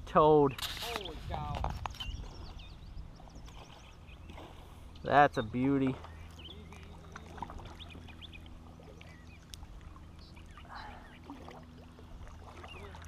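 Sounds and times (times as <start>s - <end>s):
steady low hum: 0.0s - 13.0s
water trickling and dripping: 4.9s - 13.0s
faint bird chirps: 5.4s - 11.4s.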